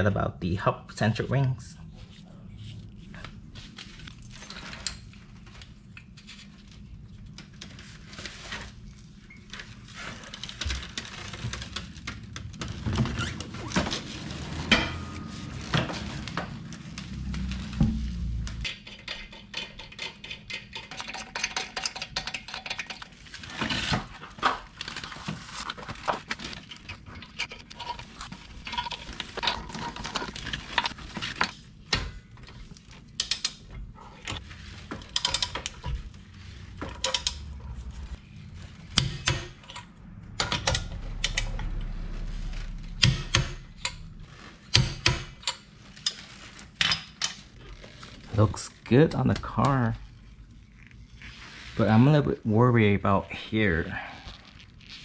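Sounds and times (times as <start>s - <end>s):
low steady hum: 0.0s - 20.8s, 23.9s - 55.0s.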